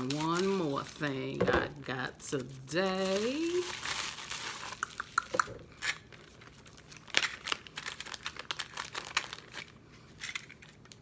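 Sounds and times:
packaging crinkling: 0:02.3 - 0:11.0.

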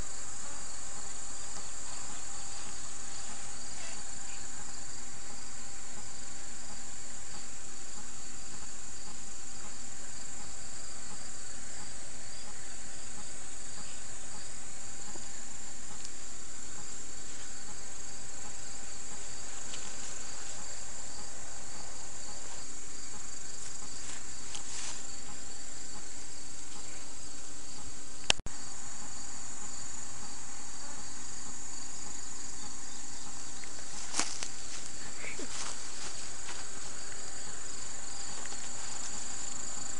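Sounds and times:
insects chirping in grass: 0:00.0 - 0:39.9.

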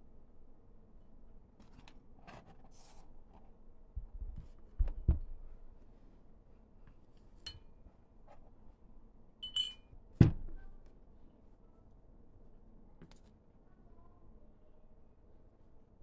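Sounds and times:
metallic clinks: 0:09.4 - 0:09.9.

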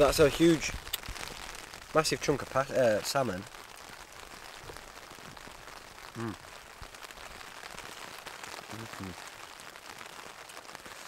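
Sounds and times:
rain on tent fabric: 0:00.0 - 0:11.0
man murmuring: 0:06.2 - 0:06.4, 0:08.7 - 0:09.2.

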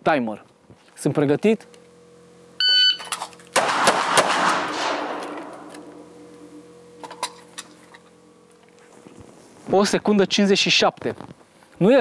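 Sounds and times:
pistol shots: 0:03.6 - 0:05.8.

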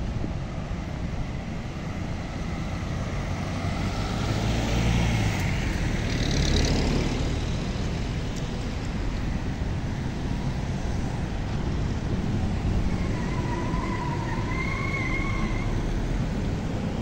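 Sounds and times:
distant street traffic rumble: 0:00.0 - 0:17.0
wind buffeting microphone: 0:07.1 - 0:17.0.

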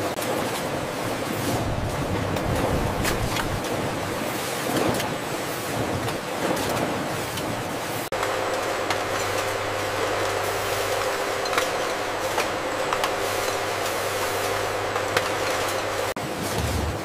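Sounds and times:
labelling machinery rushing: 0:08.1 - 0:17.0.

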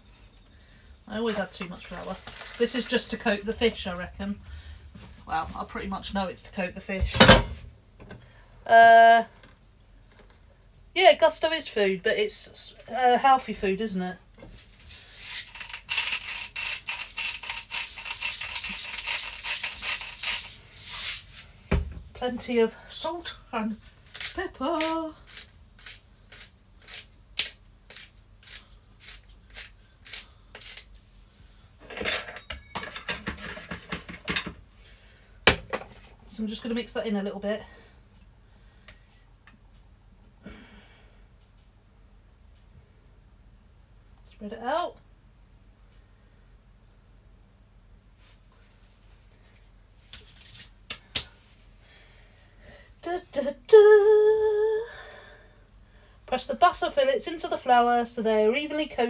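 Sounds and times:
pepper grinder grinding: 0:14.9 - 0:21.2, 0:23.8 - 0:31.0
woman humming: 0:53.2 - 0:54.9.

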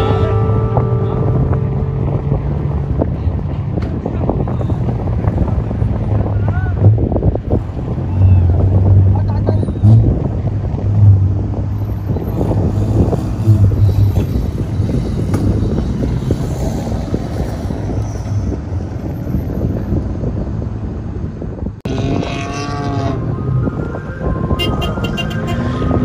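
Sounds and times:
wavering pitched tone: 0:00.0 - 0:03.1
vehicle engines running: 0:00.0 - 0:26.0
wind buffeting microphone: 0:00.0 - 0:26.0.

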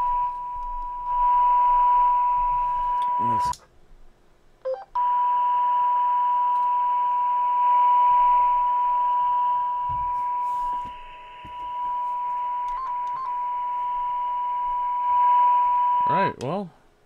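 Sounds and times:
steady test tone: 0:05.0 - 0:16.3.

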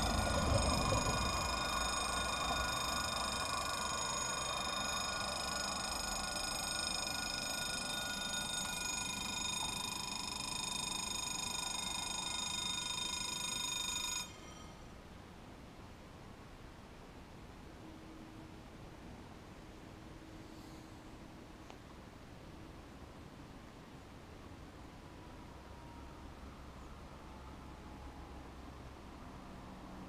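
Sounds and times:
level crossing warning bells: 0:00.0 - 0:14.9.

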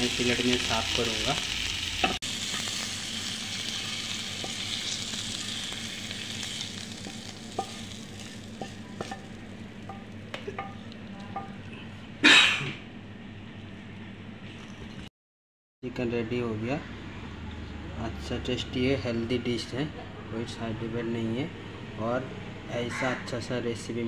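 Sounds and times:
chicken sizzling in a frying pan: 0:00.0 - 0:10.9.

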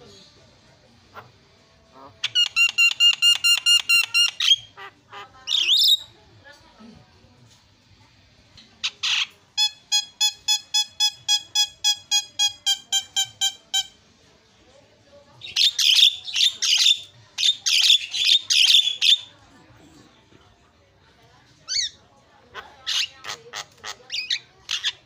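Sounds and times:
bird harsh chattering squawks: 0:01.9 - 0:06.1, 0:08.8 - 0:13.9, 0:15.4 - 0:19.3, 0:21.7 - 0:25.0.

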